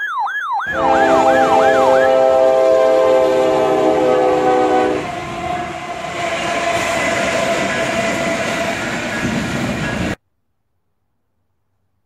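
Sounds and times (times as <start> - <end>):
train horn: 0.7 - 7.2
train engines and wheels rumbling: 0.7 - 10.2.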